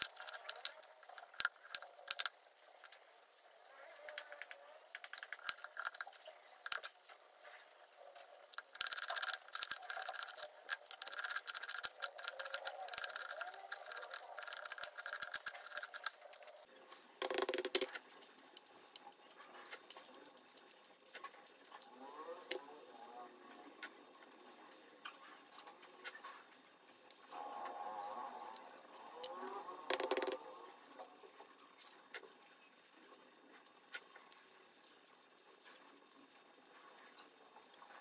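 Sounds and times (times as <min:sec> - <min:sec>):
egg shell crackling when peeled: 0:00.0 - 0:07.0, 0:08.4 - 0:16.6.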